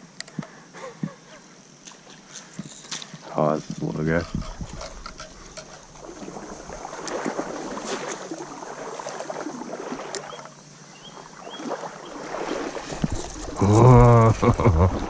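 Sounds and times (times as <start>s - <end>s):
lure splashing through water: 4.4s - 10.5s, 11.6s - 15.0s.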